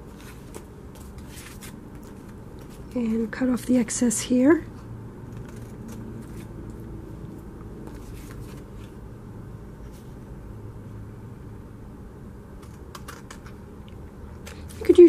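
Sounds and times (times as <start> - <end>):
steady low hum: 0.0 - 15.0
scissors snipping cardstock: 5.3 - 6.5, 12.6 - 13.6.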